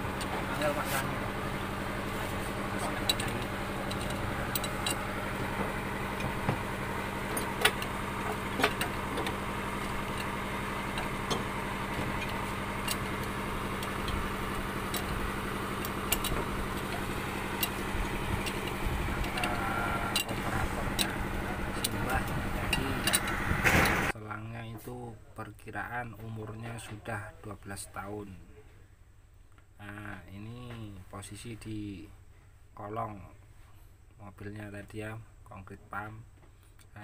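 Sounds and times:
engine running steadily: 0:00.0 - 0:24.2.

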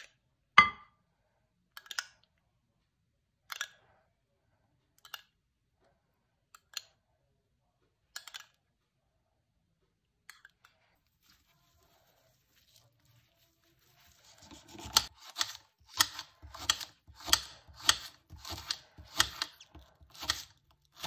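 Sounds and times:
spoon spreading mayonnaise: 0:10.3 - 0:21.0.

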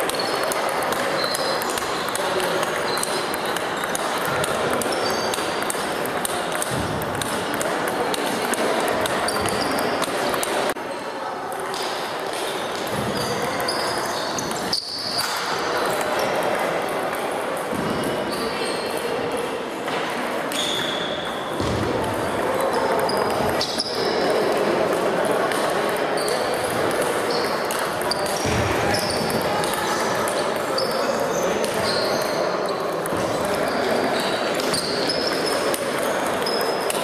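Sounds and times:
table tennis balls clicking: 0:00.0 - 0:10.8, 0:22.8 - 0:31.0, 0:33.0 - 0:33.7
hall noise and voices: 0:00.0 - 0:37.0.

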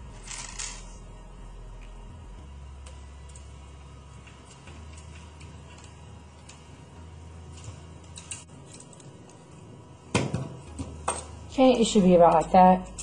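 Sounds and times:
faint steady hum: 0:00.0 - 0:13.0
metal parts clicking: 0:00.2 - 0:00.9, 0:07.5 - 0:09.4.

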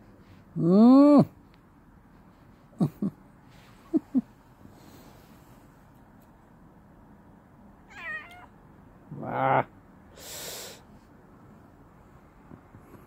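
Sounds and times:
cat yowling: 0:07.9 - 0:08.5
cat meowing: 0:07.9 - 0:08.6.

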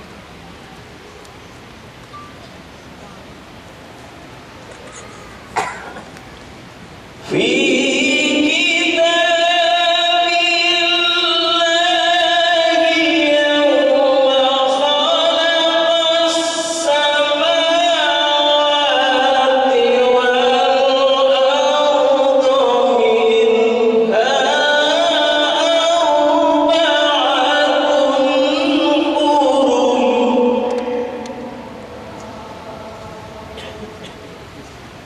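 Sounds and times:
man chanting into a microphone: 0:07.2 - 0:34.2.

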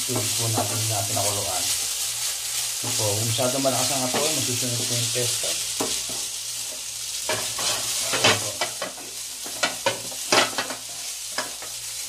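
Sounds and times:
pan sizzling: 0:00.0 - 0:12.0
wooden spatula scraping a frying pan: 0:07.3 - 0:11.7.

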